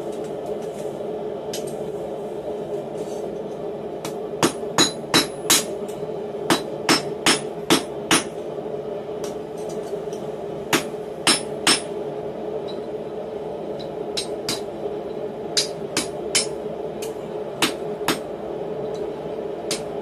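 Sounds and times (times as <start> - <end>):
steady low hum: 0.0 - 20.0
hammer striking hot metal: 4.0 - 5.8, 6.5 - 8.4, 10.7 - 12.0, 13.8 - 14.7, 15.6 - 18.3, 19.7 - 20.0.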